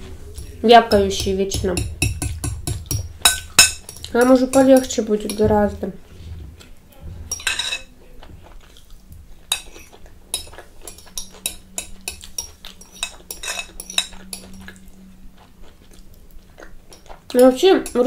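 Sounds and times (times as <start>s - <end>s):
cutlery clinking on a plate: 2.0s - 5.4s, 7.3s - 7.9s, 9.5s - 14.7s.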